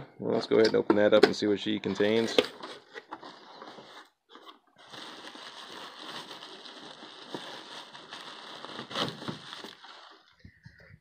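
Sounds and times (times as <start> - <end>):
plastic wrap rustling: 2.0 - 10.4
cardboard box being opened: 2.7 - 10.3.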